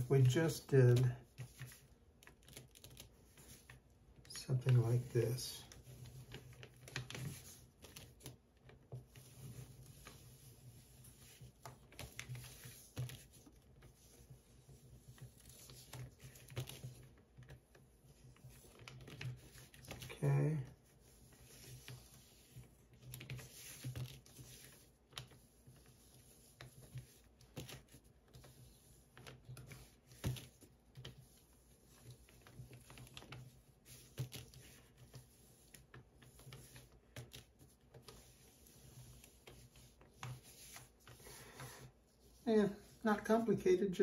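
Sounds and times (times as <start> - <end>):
stylus clicking and scratching on card: 0.1 - 43.8.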